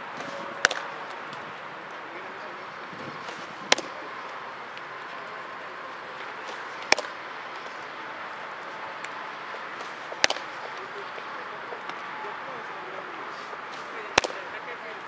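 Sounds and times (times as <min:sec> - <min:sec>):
steady background noise: 0:00.0 - 0:15.0
baseball popping into leather mitt: 0:00.2 - 0:00.9, 0:03.2 - 0:04.0, 0:06.5 - 0:07.7, 0:09.8 - 0:10.8, 0:13.7 - 0:14.4.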